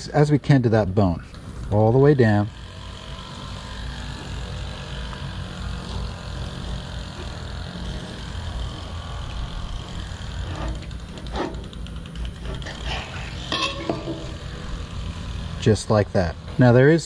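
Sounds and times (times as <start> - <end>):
knife cutting along bone: 3.3 - 12.9.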